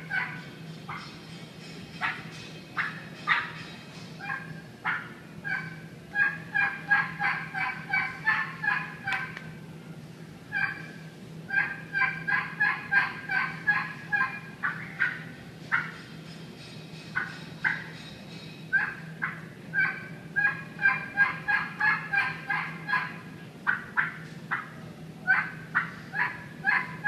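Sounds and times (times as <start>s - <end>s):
turkey call yelps: 0.0s - 1.1s, 4.2s - 9.4s, 10.5s - 16.0s, 17.2s - 17.9s, 18.7s - 27.0s.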